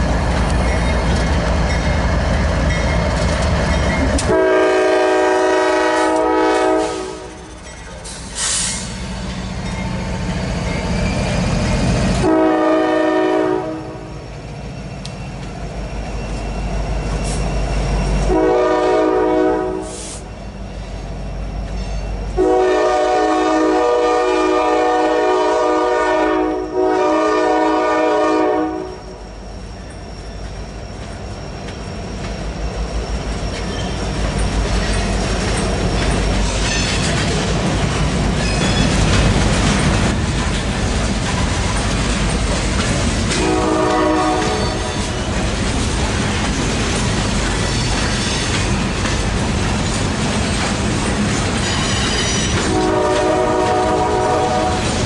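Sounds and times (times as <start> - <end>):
wheels clacking over rail joints: 0.0 - 4.5, 33.2 - 55.0
train rumbling past: 0.0 - 55.0
locomotive air horn blasts: 4.2 - 7.4, 12.2 - 14.1, 18.3 - 20.3, 22.4 - 29.2, 43.3 - 44.9, 52.2 - 54.9.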